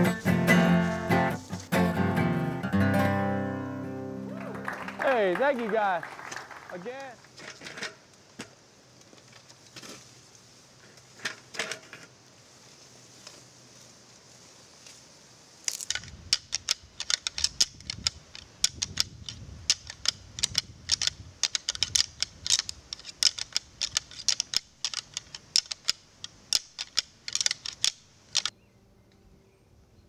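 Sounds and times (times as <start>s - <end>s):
antlers rattled together: 15.8s - 28.5s.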